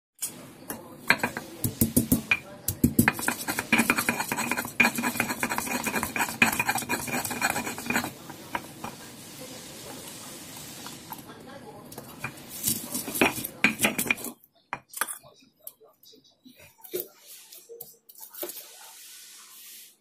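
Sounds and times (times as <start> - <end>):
stone pestle pounding and grinding: 1.1 - 8.9, 13.0 - 14.3.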